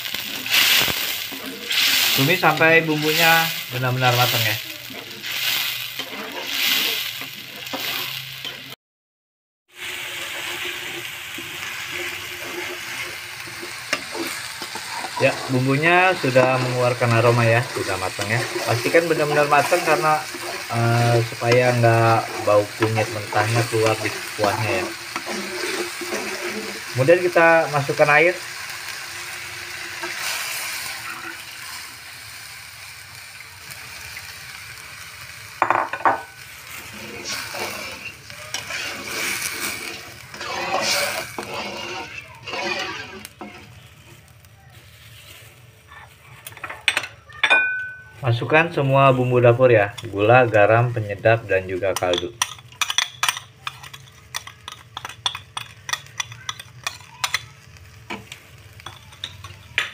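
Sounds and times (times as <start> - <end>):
metal spatula scraping wok: 0.0 - 8.8, 9.8 - 31.7, 36.3 - 47.0
water sizzling in hot oil: 0.0 - 8.8, 9.7 - 59.9
metal spoon scraping glass bowl: 37.5 - 43.6.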